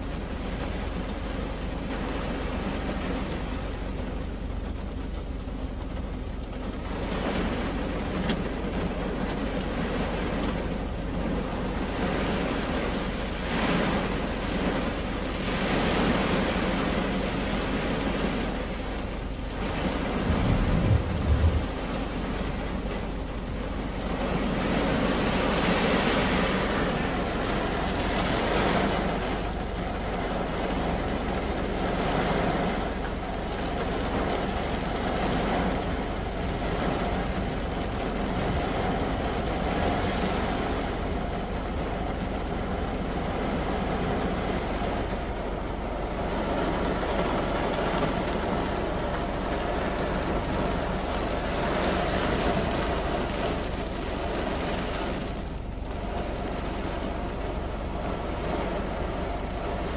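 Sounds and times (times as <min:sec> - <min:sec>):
rain on car roof: 0:00.0 - 0:59.9
low rumble: 0:19.0 - 0:24.3.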